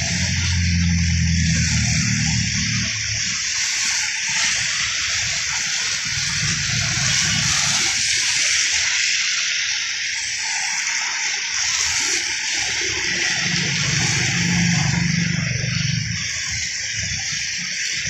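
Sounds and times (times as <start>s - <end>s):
vehicle engines rumbling past: 0.0s - 3.4s, 13.0s - 17.3s
tyres hissing on wet road: 0.0s - 18.0s.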